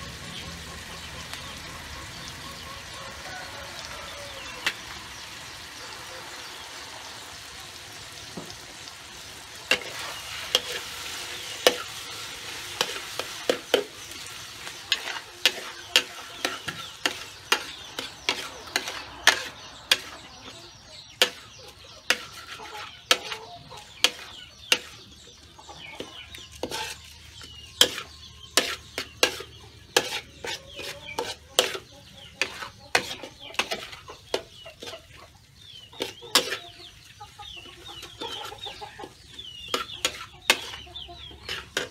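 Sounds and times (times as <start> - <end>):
frying sizzle: 0.0 - 41.9
metal spatula scraping a wok: 8.8 - 20.6, 21.2 - 35.2, 35.9 - 37.1, 39.6 - 41.9.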